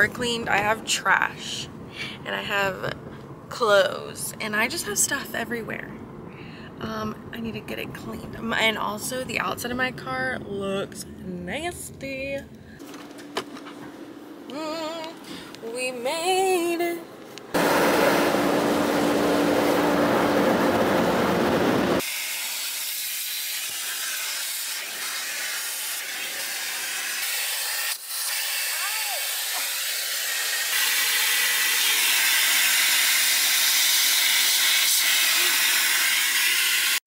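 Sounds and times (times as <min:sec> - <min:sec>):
car wash water jets spraying: 0:17.5 - 0:37.0
vacuum hose sucking: 0:17.6 - 0:37.0.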